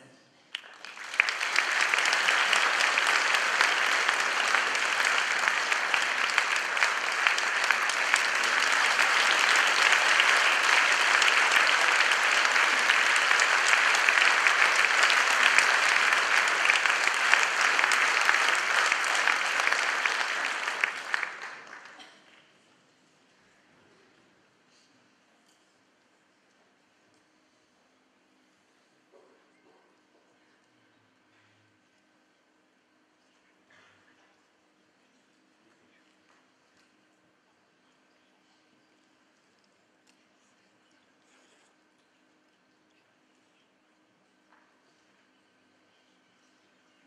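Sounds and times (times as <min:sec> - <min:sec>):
audience applauding: 0:00.5 - 0:22.3.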